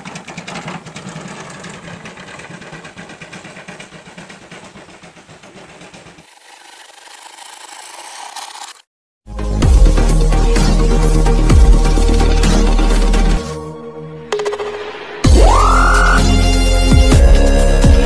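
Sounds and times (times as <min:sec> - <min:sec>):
small engine running: 0:00.0 - 0:08.9
electronic music: 0:09.6 - 0:18.0.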